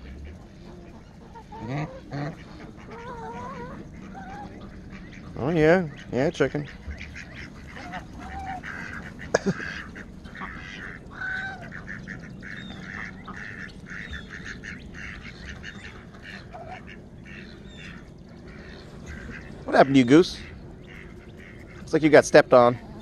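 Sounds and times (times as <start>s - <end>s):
ducks quacking: 0.0s - 23.0s.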